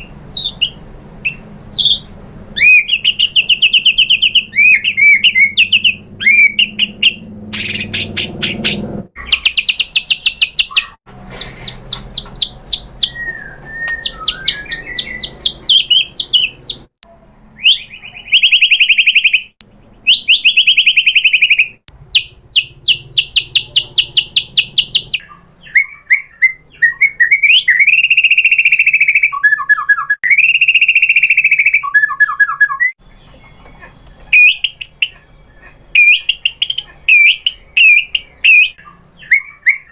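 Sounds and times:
bird singing trills and whistles: 0:00.0 - 0:16.9, 0:17.6 - 0:39.9.

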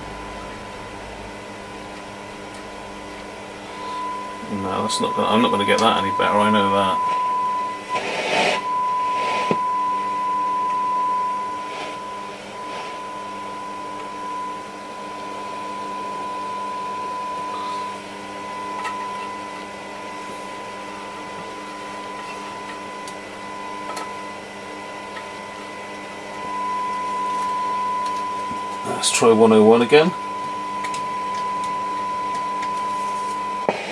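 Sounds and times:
faint radio hiss: 0:00.0 - 0:09.9, 0:11.0 - 0:13.3, 0:32.8 - 0:33.9
radio test tone: 0:00.0 - 0:33.9.

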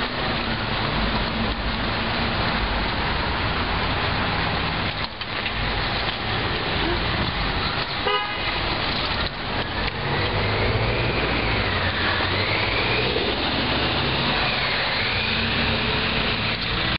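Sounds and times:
outdoor street noise: 0:00.0 - 0:16.9
short horn toot: 0:08.0 - 0:08.6
wheelchair motors whining: 0:09.6 - 0:16.9.

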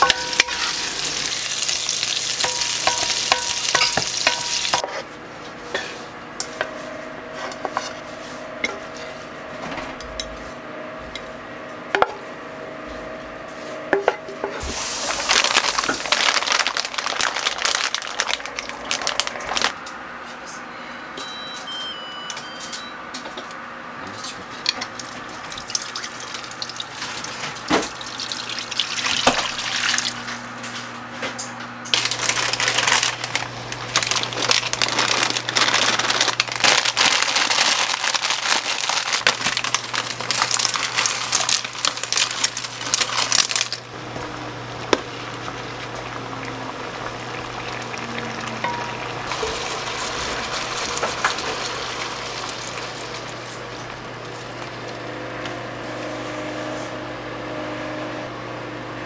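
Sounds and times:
water boiling in a pan: 0:00.0 - 0:04.8, 0:14.7 - 0:19.3, 0:25.3 - 0:30.3, 0:39.6 - 0:55.1
garlic crackling in oil: 0:00.5 - 0:04.8, 0:31.9 - 0:43.9
steady low hum: 0:39.6 - 0:59.0.

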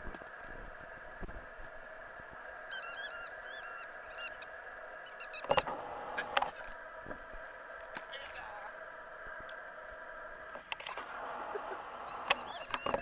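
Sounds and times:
squeaky toy ball squeaking: 0:12.1 - 0:13.0.

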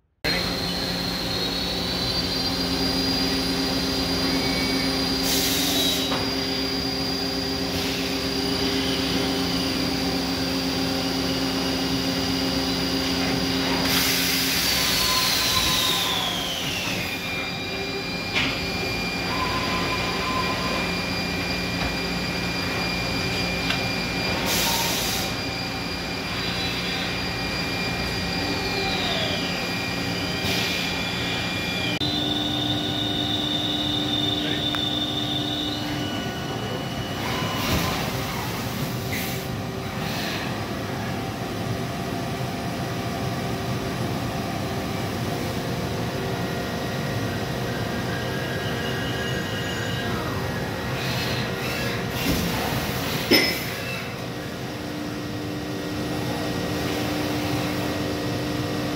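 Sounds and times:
servo drives whining: 0:00.3 - 0:39.4.

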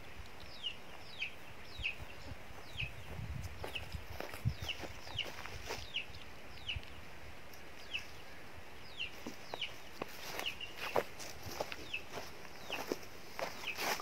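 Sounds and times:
bird peeping: 0:00.4 - 0:07.0, 0:07.6 - 0:14.0
footsteps on dry ground: 0:00.6 - 0:06.1, 0:08.9 - 0:14.0.

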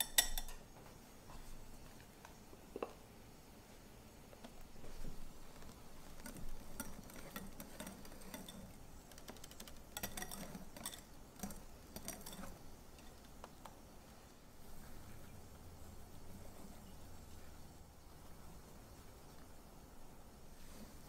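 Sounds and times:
whisk clicking against glass bowl: 0:00.0 - 0:00.6, 0:06.0 - 0:13.3.

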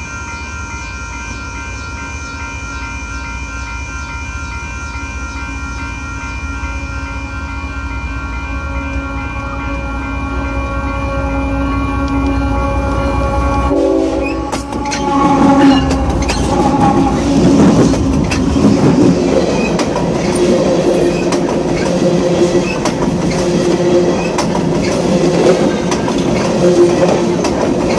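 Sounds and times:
steel wheels clattering on rail: 0:14.1 - 0:27.9.

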